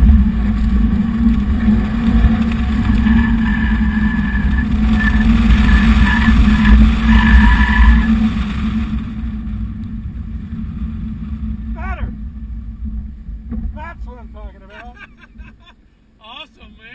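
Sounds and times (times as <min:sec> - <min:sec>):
car engine running hard: 0:00.0 - 0:14.7
tyres squealing: 0:02.9 - 0:08.2.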